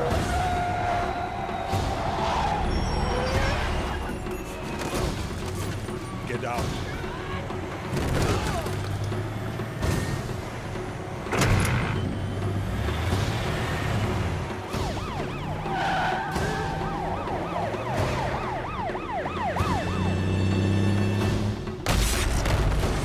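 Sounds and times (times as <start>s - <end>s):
truck engines rumbling: 0.0s - 21.8s
fire truck siren yelping: 14.7s - 20.7s.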